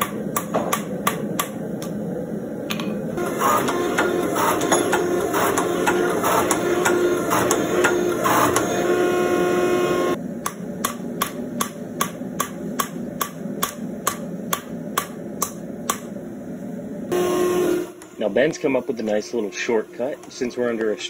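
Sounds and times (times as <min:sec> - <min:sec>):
hammer striking steel on anvil: 0:00.0 - 0:01.9, 0:10.4 - 0:16.1
hydraulic press pump motor running: 0:03.2 - 0:10.2, 0:17.1 - 0:21.0.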